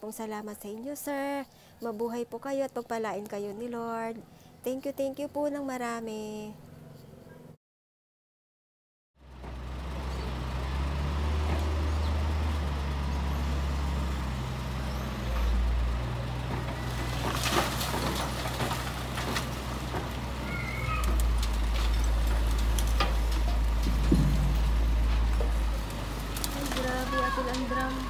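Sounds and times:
diesel engine humming: 0:09.2 - 0:28.0
sharp knocks and clatters: 0:21.0 - 0:26.9.

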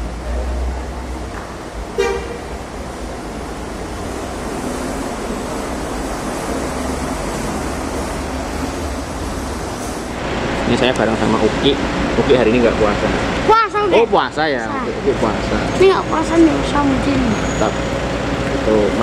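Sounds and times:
bus diesel engine: 0:00.0 - 0:19.0
bus horn toot: 0:01.9 - 0:02.5.

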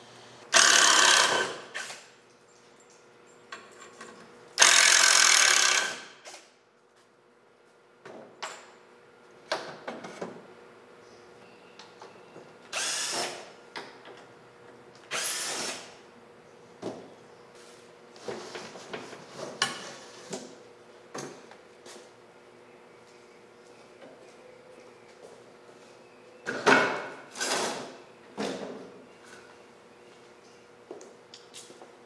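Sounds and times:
cordless drill spinning: 0:00.5 - 0:02.1, 0:12.7 - 0:13.4, 0:15.1 - 0:15.9.

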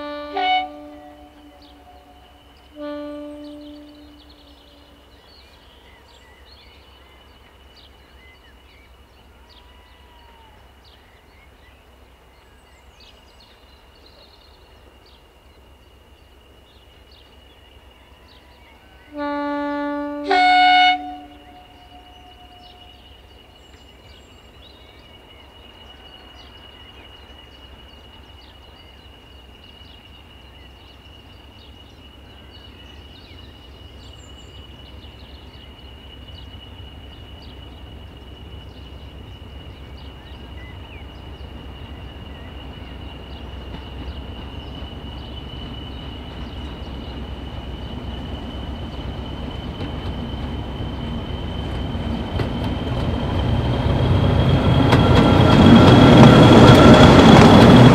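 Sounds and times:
locomotive two-tone horn: 0:00.0 - 0:05.1, 0:19.1 - 0:22.9
birds chirping: 0:31.5 - 0:57.9.

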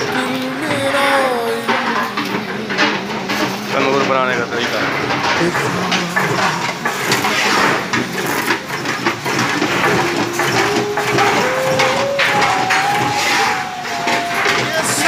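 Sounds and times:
metal scraping and creaking in machine: 0:00.0 - 0:15.0
held notes climbing in pitch: 0:09.3 - 0:15.0.

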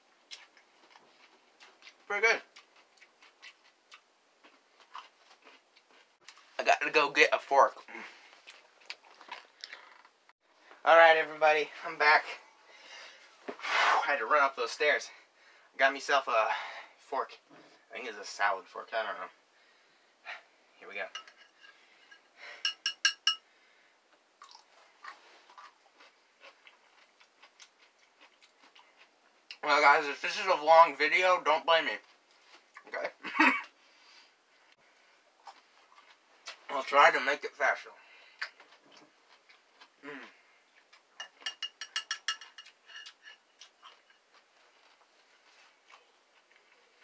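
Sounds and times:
fork clinking on glass jar: 0:21.1 - 0:21.5, 0:22.1 - 0:23.4, 0:41.2 - 0:43.2.

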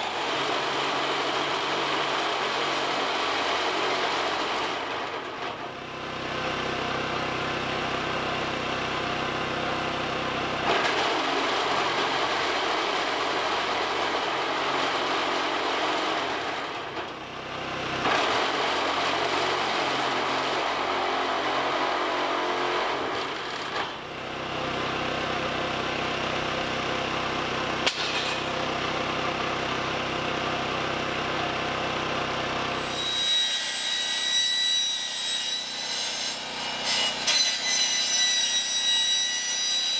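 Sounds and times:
power tool cutting metal: 0:00.0 - 0:05.2, 0:18.0 - 0:24.0, 0:27.8 - 0:28.6, 0:32.7 - 0:39.9.

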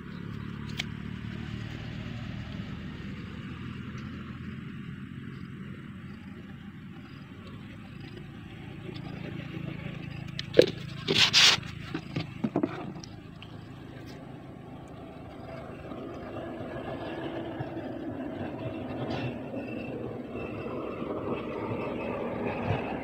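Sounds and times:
loud scrapes: 0:10.9 - 0:12.0.

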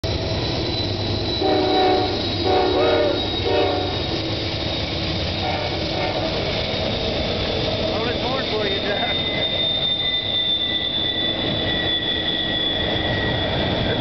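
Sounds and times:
train rumbling past: 0:00.0 - 0:14.0
locomotive air horn blasts: 0:01.4 - 0:04.0, 0:05.4 - 0:06.4.

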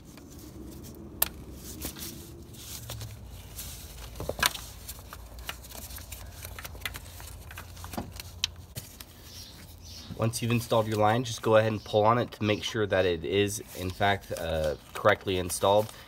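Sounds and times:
clicks and rustles of hose fitting: 0:02.9 - 0:09.1.

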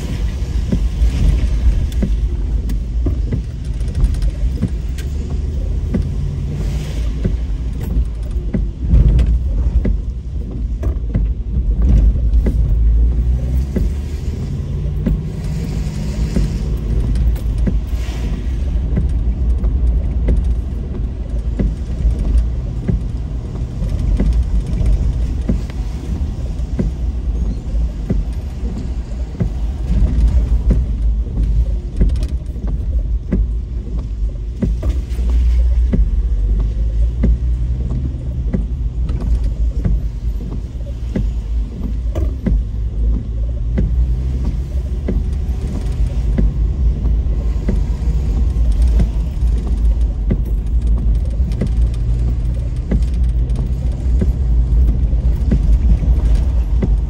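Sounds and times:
car engine and road rumble: 0:00.0 - 0:57.0
small clicks and knocks: 0:18.8 - 0:57.0.

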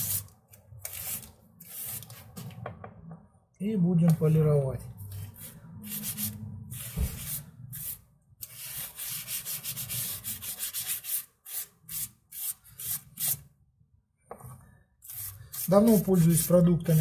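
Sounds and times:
hand rubbing paste on plastic: 0:15.0 - 0:17.0.

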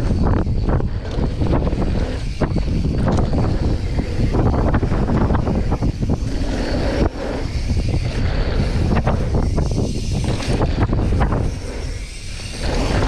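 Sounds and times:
bike clacks and rattles: 0:00.0 - 0:13.0
rumbling tyres on dirt: 0:00.0 - 0:13.0
wind buffeting microphone: 0:00.0 - 0:13.0.

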